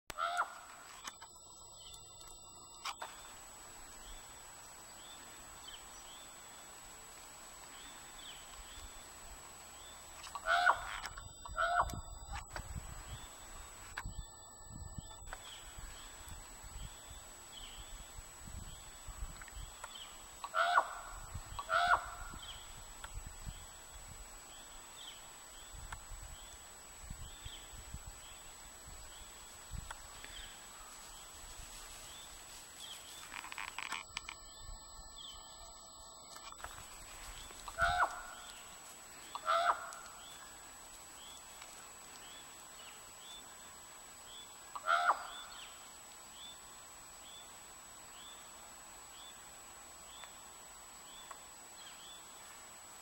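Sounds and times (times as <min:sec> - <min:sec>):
short pitched animal calls: 0:00.1 - 0:01.1, 0:10.2 - 0:12.1, 0:20.4 - 0:22.4, 0:37.4 - 0:38.7, 0:39.3 - 0:40.1.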